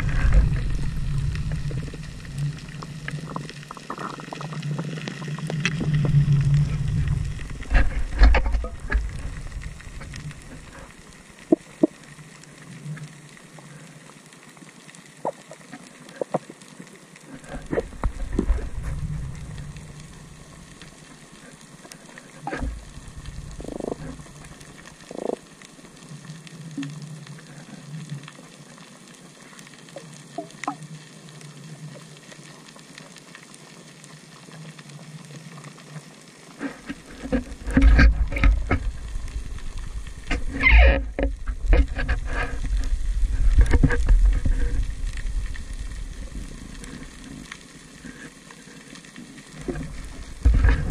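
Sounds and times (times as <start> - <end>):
faint underwater crackle: 0.0 - 50.9
muffled water thumps: 5.6 - 10.7, 36.9 - 45.4, 49.6 - 50.9.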